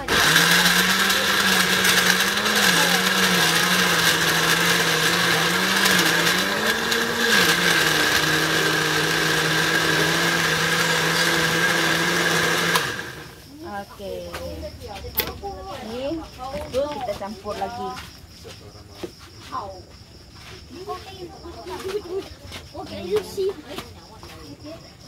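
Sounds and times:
blender running: 0.0 - 13.4.

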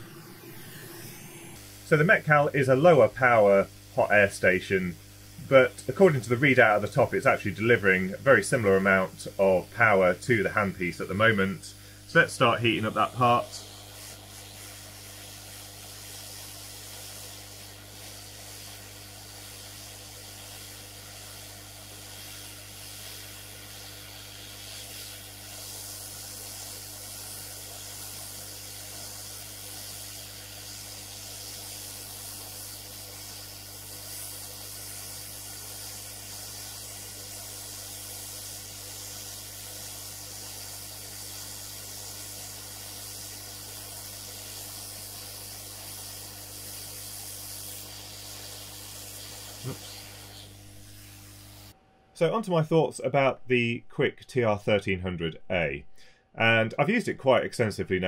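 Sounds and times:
steady low hum: 0.0 - 30.8
hot air blower hissing: 0.0 - 51.8.

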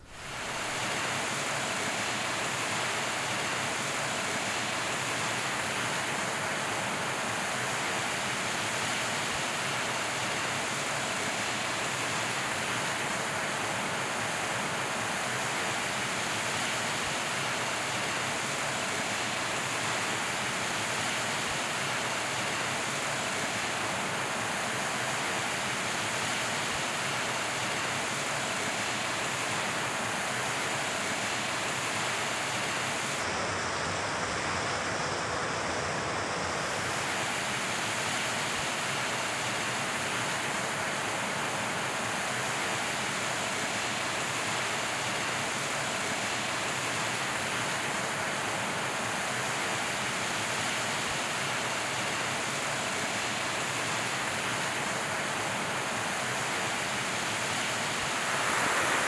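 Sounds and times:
stream rushing over rocks: 37.0 - 59.0.

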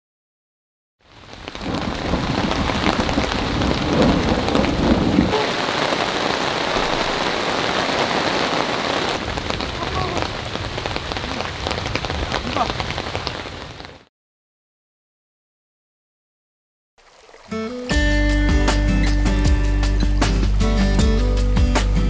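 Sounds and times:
heavy rain on a tarp: 1.0 - 14.1, 17.0 - 21.1.

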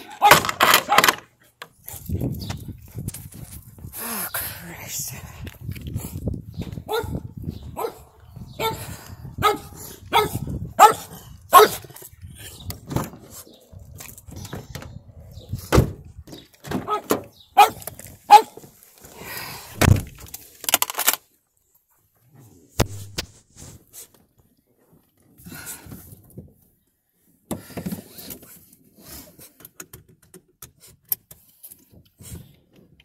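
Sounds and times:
dog barking: 6.9 - 7.2, 7.8 - 8.0, 8.6 - 8.8, 9.4 - 11.9, 16.8 - 18.6
heavy thumps: 19.8 - 20.3.

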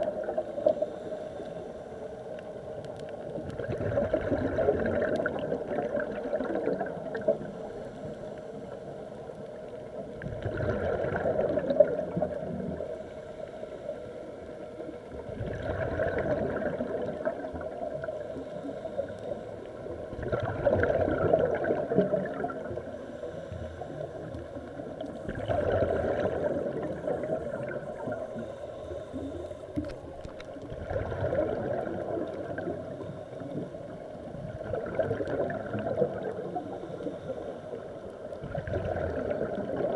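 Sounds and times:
gurgling exhaled bubbles: 0.0 - 0.8, 3.2 - 7.8, 9.8 - 12.9, 15.1 - 19.0, 19.6 - 23.0, 23.8 - 28.5, 29.2 - 39.9
steady underwater hiss: 0.0 - 39.9.

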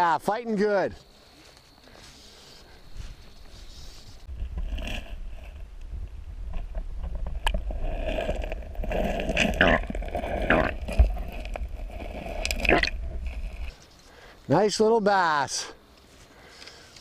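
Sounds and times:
underwater river rumble: 4.3 - 13.7.

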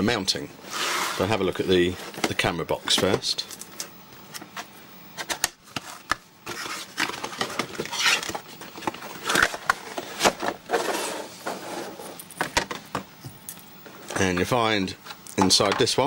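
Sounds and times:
cardboard scraping and rustling: 0.7 - 3.2, 4.4 - 12.2.

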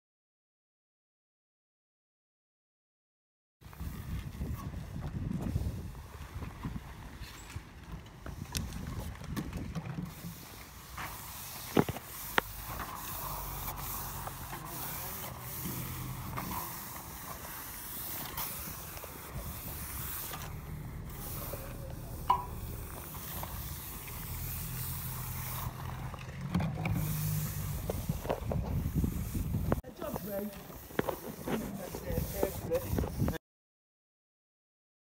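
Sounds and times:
trowel scraping on stone aggregate: 10.1 - 33.4.

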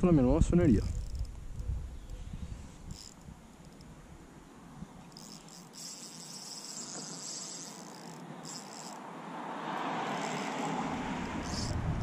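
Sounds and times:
wind noise on microphone: 0.0 - 4.1, 10.8 - 12.0
fishing reel drag buzzing: 0.8 - 4.0, 4.8 - 12.0.

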